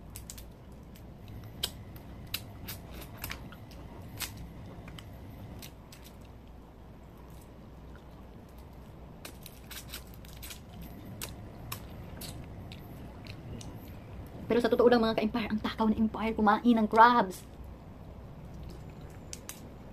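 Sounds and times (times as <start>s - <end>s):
crab shell cracking: 0.0s - 6.6s, 8.1s - 13.8s, 18.6s - 19.7s
chewing and sucking: 9.6s - 14.1s.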